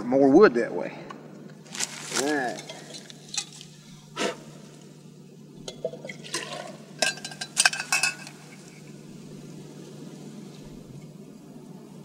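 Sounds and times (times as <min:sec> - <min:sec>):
water pouring into metal pot: 0:05.8 - 0:08.3
metallic clinks and knocks: 0:07.0 - 0:08.4.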